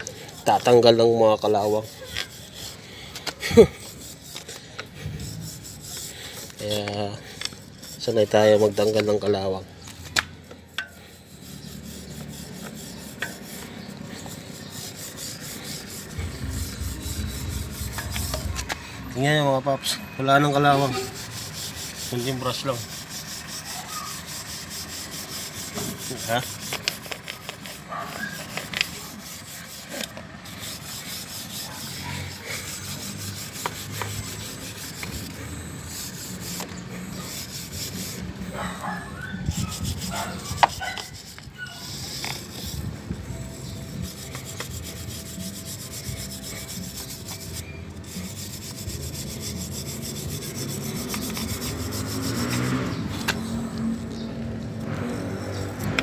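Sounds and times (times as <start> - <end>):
wire brush scrubbing metal chain: 0.0 - 18.6, 19.2 - 54.2, 54.9 - 56.0.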